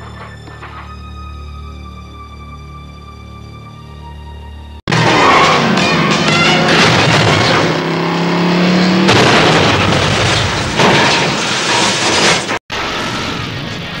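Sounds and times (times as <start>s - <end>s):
loud impact: 4.9s - 8.0s, 8.8s - 12.6s
car engine droning: 4.9s - 11.1s
car crashing and metal scraping: 4.9s - 12.9s
large explosion rumble: 9.0s - 11.6s.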